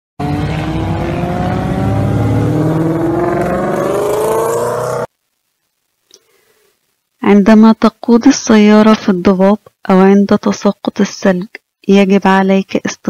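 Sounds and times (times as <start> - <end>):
car engine accelerating: 0.2 - 5.1.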